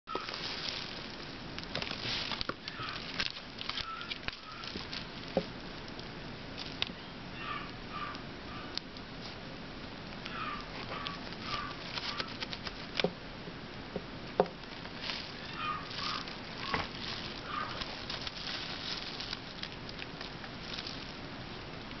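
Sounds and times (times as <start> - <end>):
puppy paws scratching floor: 0.1 - 5.5, 10.6 - 13.1, 14.8 - 21.2.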